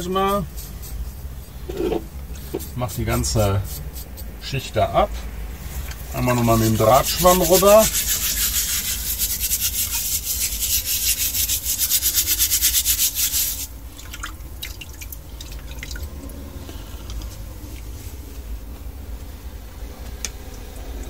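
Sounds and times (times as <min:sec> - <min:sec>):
wire sponge scrubbing metal: 0:00.0 - 0:04.8, 0:05.8 - 0:13.7
water dripping: 0:14.0 - 0:16.3.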